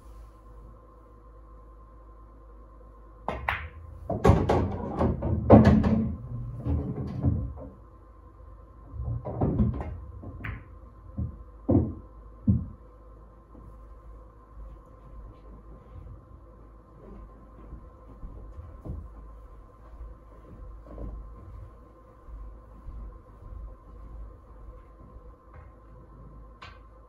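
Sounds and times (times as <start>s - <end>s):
cue striking ball: 3.3s - 7.6s, 9.2s - 12.0s
pool balls clacking: 3.3s - 7.8s, 9.0s - 12.7s.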